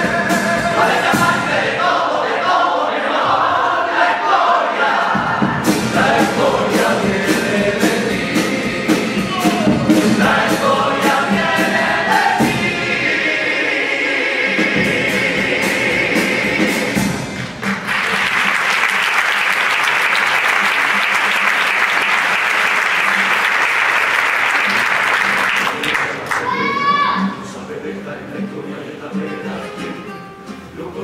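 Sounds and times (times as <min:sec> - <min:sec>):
male choir singing in harmony: 0:00.0 - 0:17.4, 0:27.3 - 0:31.0
audience applause: 0:17.4 - 0:26.9.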